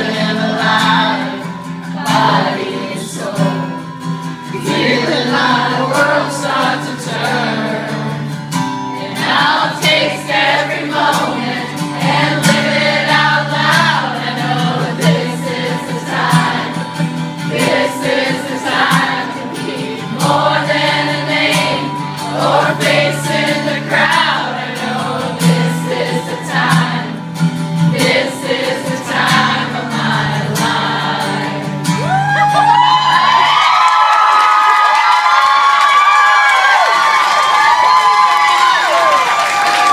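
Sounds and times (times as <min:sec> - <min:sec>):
crowd singing along: 0:00.0 - 0:32.8
strummed acoustic guitar: 0:00.0 - 0:33.5
crowd cheering and screaming: 0:31.9 - 0:39.9.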